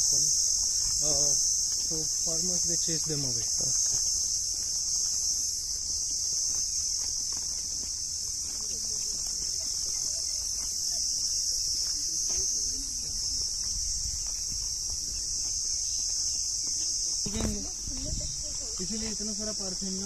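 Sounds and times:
high-pitched insect chorus: 0.0 - 20.0
footsteps on dry grass: 0.1 - 20.0
faint voices: 8.3 - 14.0.

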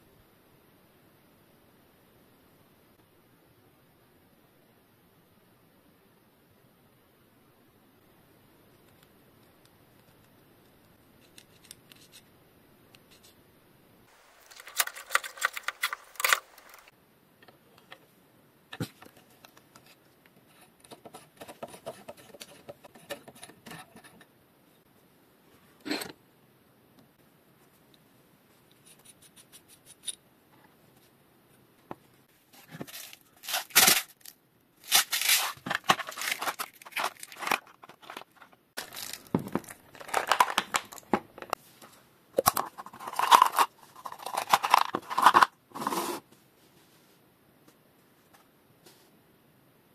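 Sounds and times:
small parts and tools clicking: 14.2 - 16.9.

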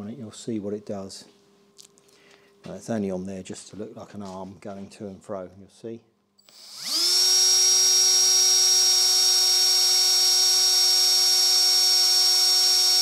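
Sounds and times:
electric drill whining: 6.4 - 13.0.

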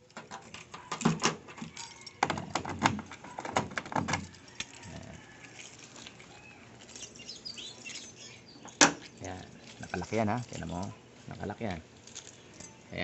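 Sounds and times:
metal wire clicking and knocking: 0.0 - 4.9.

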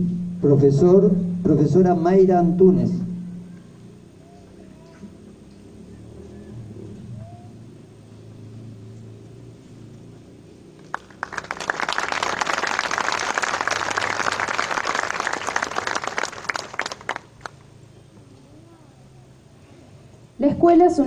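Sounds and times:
audience clapping: 10.8 - 17.6.

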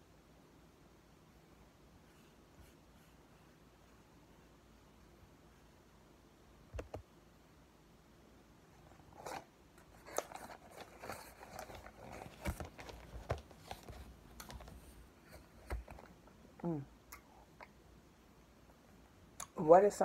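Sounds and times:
cardboard box crinkling: 9.1 - 16.1.

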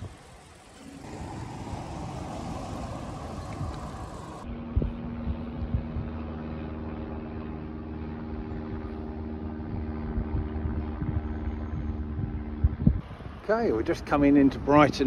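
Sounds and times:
low bumps: 0.0 - 6.1
engine running steadily: 0.0 - 15.0.

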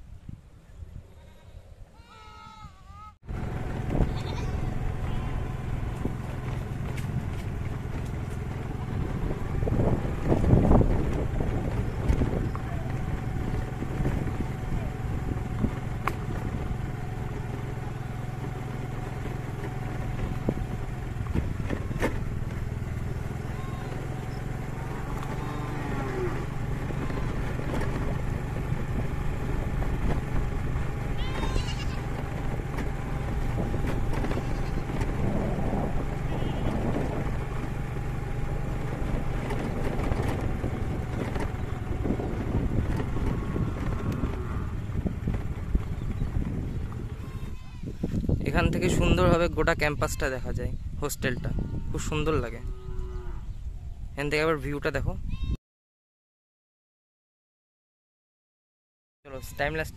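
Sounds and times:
wind buffeting microphone: 0.0 - 1.9, 2.5 - 55.6
small engine running: 3.3 - 49.6.

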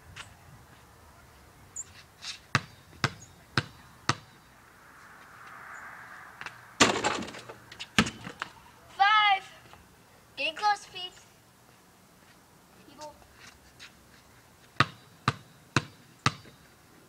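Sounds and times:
basketball bouncing on pavement: 2.3 - 4.4, 6.4 - 8.6, 14.7 - 16.7
ball striking hoop with rattle: 6.8 - 8.4, 14.8 - 16.6.

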